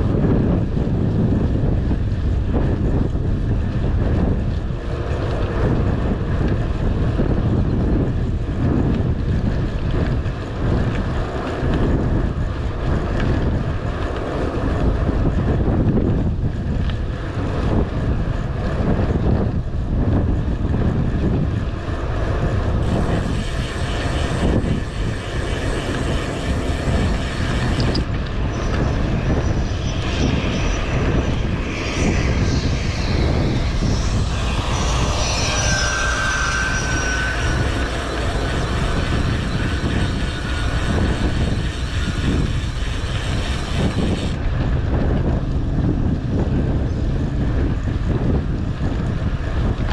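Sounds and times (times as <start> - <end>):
tyre noise on road: 0.0 - 49.9
wind buffeting microphone: 0.0 - 49.9
thin high tones: 27.0 - 43.6.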